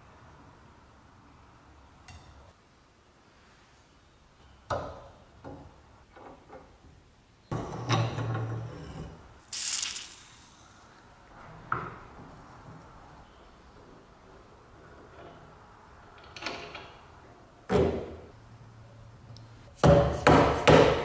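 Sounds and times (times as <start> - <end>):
short hissing scrape: 9.5 - 11.1.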